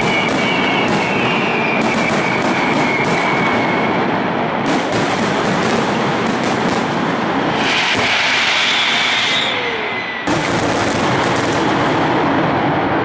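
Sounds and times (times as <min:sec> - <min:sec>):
firework whistle: 0:00.0 - 0:12.8
fireworks crackling and banging: 0:00.0 - 0:13.0.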